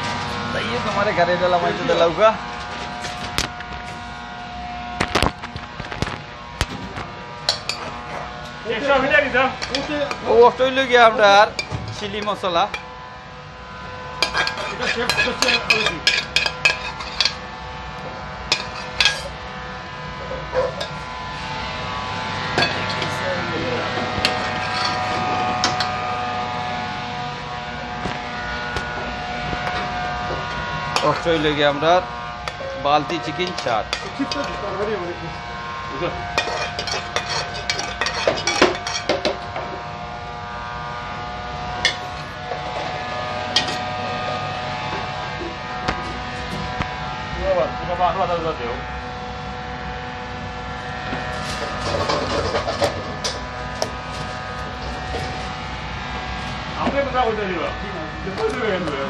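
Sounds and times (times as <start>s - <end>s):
steady hum: 0.0s - 59.0s
metal spoon scraping steel bowl: 9.6s - 10.1s, 14.2s - 17.4s, 18.5s - 19.4s, 24.2s - 25.9s, 31.0s - 31.6s, 32.5s - 34.6s, 36.3s - 39.2s.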